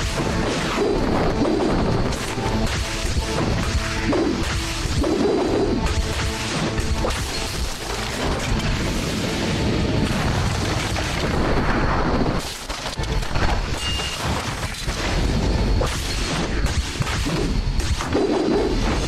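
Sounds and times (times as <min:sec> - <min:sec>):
explosion booms and crashes: 0:00.0 - 0:12.5.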